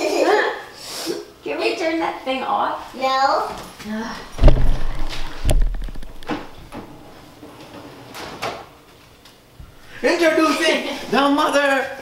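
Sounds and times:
heavy door thumps: 0:04.3 - 0:07.0.

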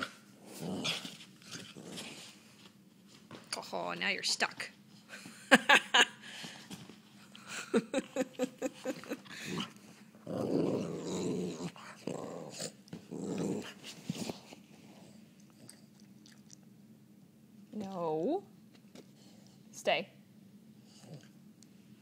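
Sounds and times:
dog play-growling: 0:00.0 - 0:02.5, 0:09.2 - 0:16.5.

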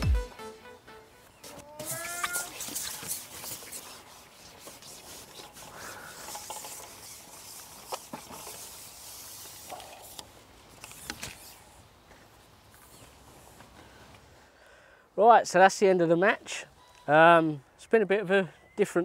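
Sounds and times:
soft rustling and rubbing: 0:01.4 - 0:14.4.

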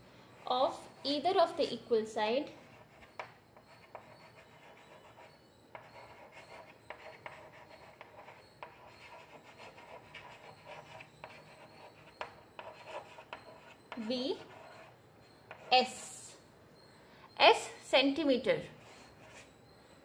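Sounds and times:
chalk scratching on chalkboard: 0:02.4 - 0:16.0, 0:18.8 - 0:19.5.

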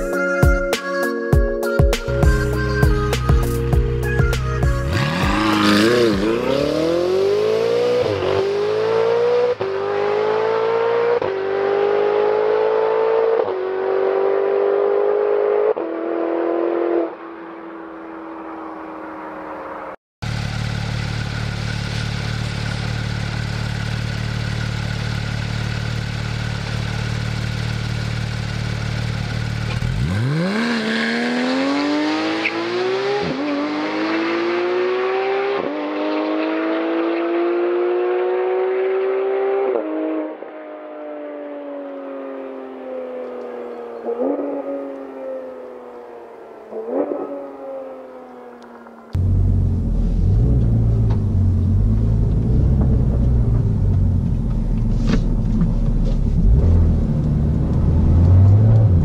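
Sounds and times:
sports car accelerating with upshifts: 0:04.7 - 0:59.0
sports car engine idling: 0:20.2 - 0:30.0, 0:49.2 - 0:57.9.

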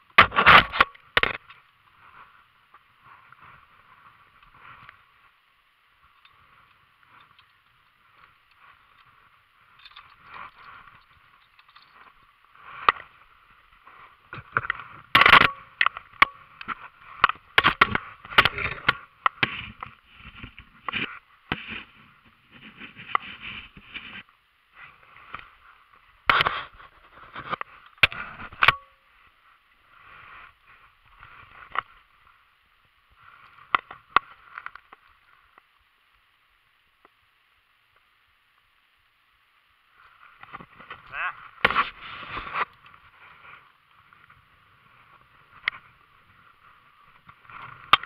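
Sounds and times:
faint steady hiss: 0:00.0 - 0:48.0.

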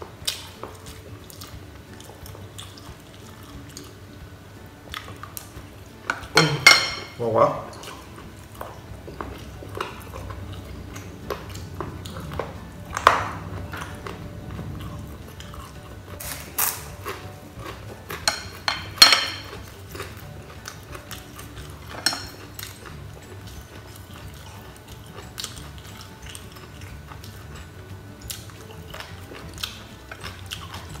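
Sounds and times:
chopsticks and bowls clinking: 0:06.0 - 0:14.2, 0:14.8 - 0:31.0
rice paper crunching: 0:16.1 - 0:17.7.

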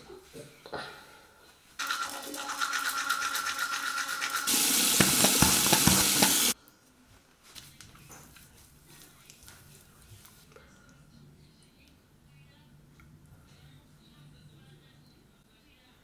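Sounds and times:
electric toothbrush buzzing: 0:01.8 - 0:06.6
tap water running: 0:01.8 - 0:06.6.

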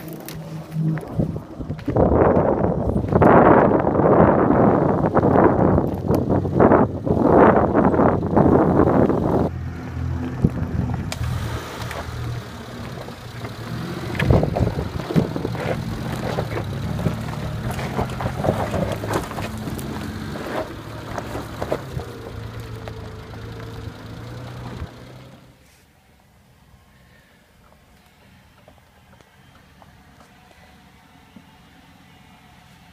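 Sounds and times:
car engine under load: 0:00.0 - 0:25.7
stones crackling under wheels: 0:10.2 - 0:25.3
tyres spinning: 0:10.2 - 0:25.6.

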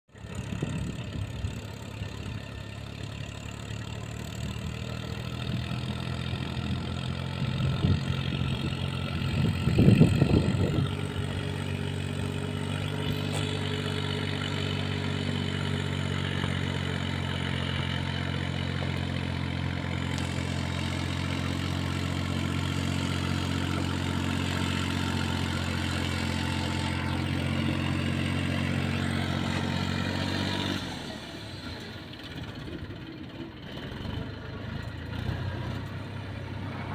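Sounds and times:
tractor diesel engine running: 0:00.1 - 0:36.9
loud rumble: 0:07.4 - 0:16.5.

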